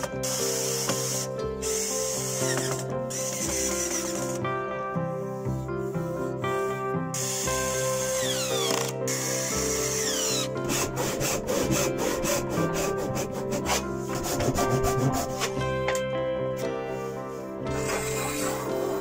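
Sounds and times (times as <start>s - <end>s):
acoustic background music: 0.0s - 19.0s
cordless drill running: 0.2s - 4.4s, 7.2s - 11.3s
hand saw cutting wood: 8.1s - 16.0s.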